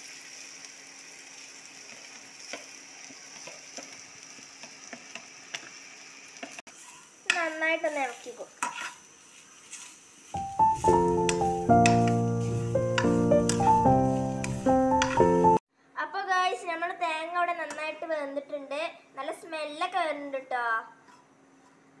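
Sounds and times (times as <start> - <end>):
food sizzling in a pan: 0.0 - 15.6
spatula scraping a pan: 6.5 - 7.4, 8.1 - 10.1.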